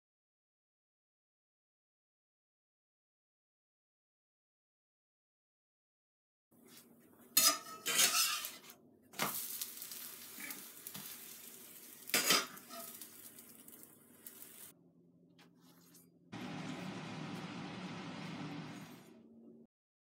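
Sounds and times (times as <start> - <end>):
metal spatula scraping frying pan: 7.4 - 8.8, 12.1 - 13.1
batter sizzling: 9.2 - 14.8.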